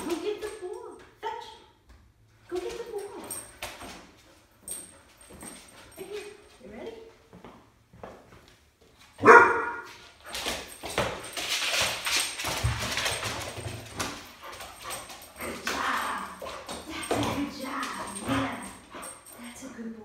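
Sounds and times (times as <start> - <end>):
puppy scuffling on wooden floor: 2.6 - 19.2
puppy barking: 9.2 - 9.9.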